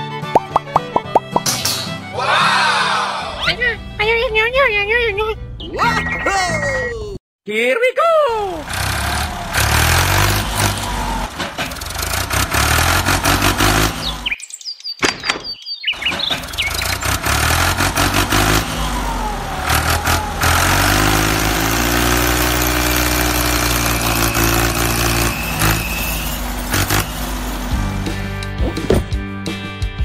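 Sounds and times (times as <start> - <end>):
tractor engine running: 8.6 - 14.4, 16.0 - 29.2
birds chirping: 13.8 - 17.3.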